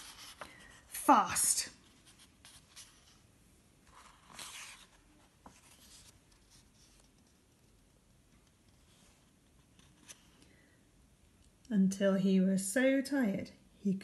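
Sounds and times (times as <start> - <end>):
paper rustle: 0.0 - 0.8, 3.8 - 7.8.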